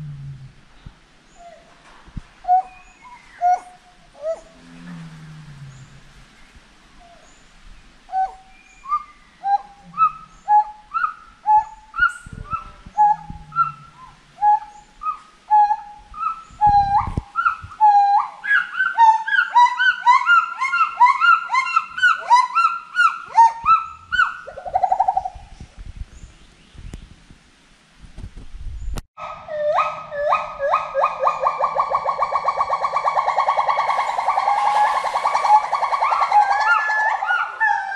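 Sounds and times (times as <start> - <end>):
gibbons singing: 30.2 - 37.9.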